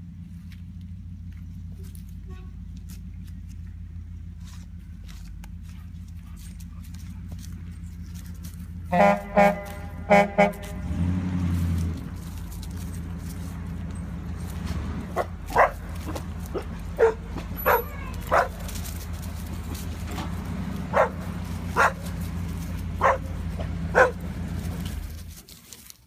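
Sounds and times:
motorhome engine idling: 0:00.0 - 0:26.0
dogs barking: 0:14.2 - 0:25.1.

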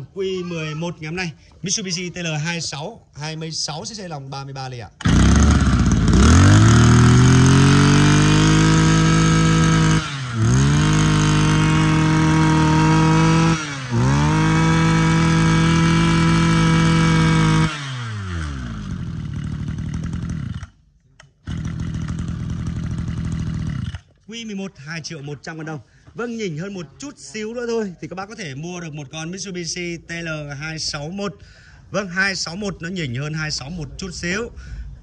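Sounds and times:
brush cutter engine revving: 0:05.0 - 0:24.2.

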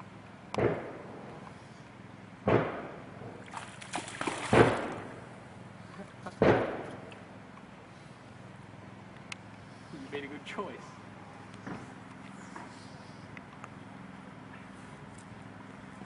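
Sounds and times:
water splashing: 0:03.4 - 0:05.2.

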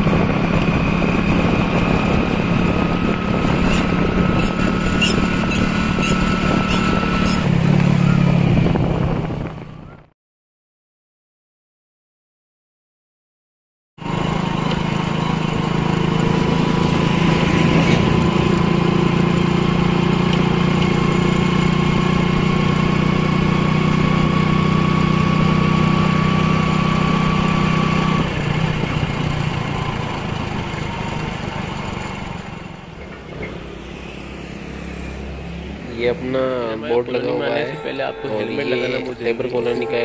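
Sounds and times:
motorcycle engine running: 0:00.0 - 0:10.1, 0:14.0 - 0:33.0.

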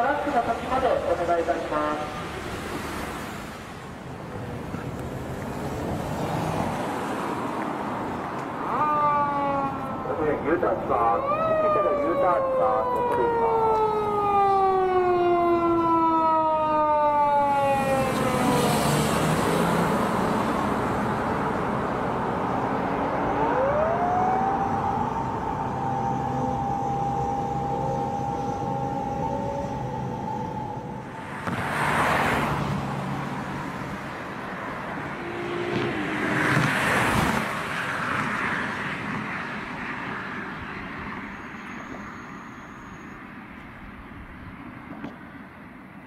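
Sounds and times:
street traffic noise: 0:00.0 - 0:46.0
traffic rushing past: 0:00.0 - 0:46.0
police car siren wailing: 0:08.6 - 0:33.6, 0:34.8 - 0:37.8.

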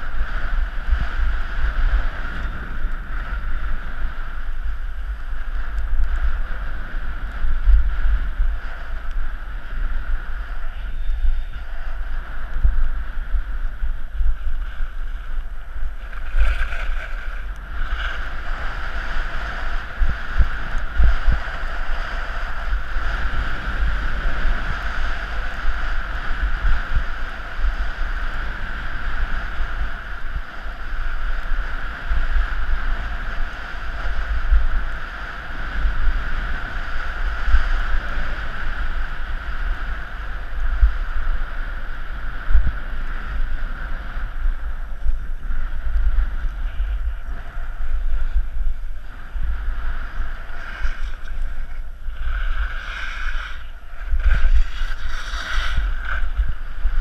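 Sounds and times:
wind buffeting microphone: 0:00.0 - 0:57.0
skis hissing on packed snow: 0:50.0 - 0:56.8.

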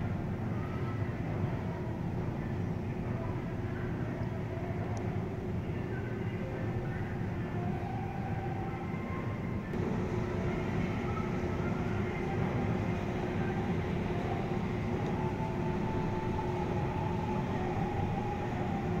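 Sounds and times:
held humming tones: 0:03.2 - 0:19.0
mechanical drone and rumble: 0:09.7 - 0:19.0.

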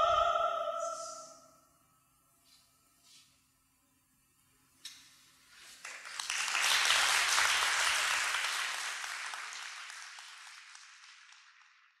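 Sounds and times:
audience applauding: 0:05.8 - 0:12.0.

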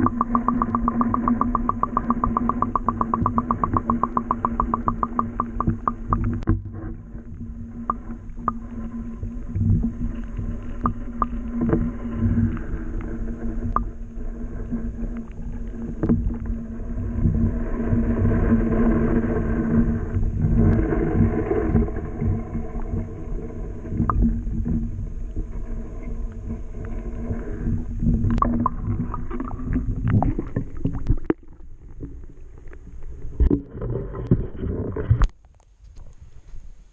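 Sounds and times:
clicks and knocks: 0:00.0 - 0:06.6
steady hum: 0:00.0 - 0:35.1
underwater rumble: 0:00.0 - 0:36.9.

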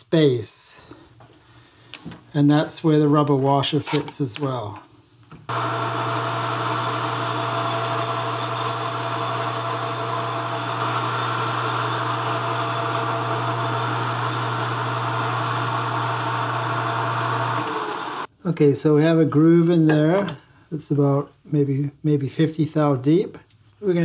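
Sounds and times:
metal lathe motor hum: 0:05.5 - 0:18.3.

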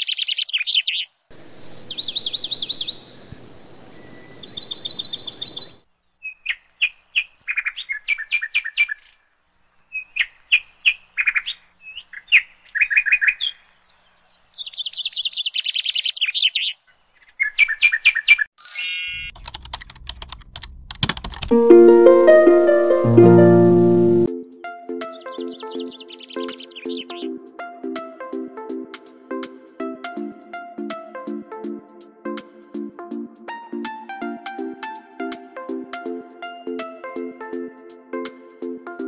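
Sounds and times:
songbirds chirping: 0:00.0 - 0:18.5, 0:24.6 - 0:27.4.

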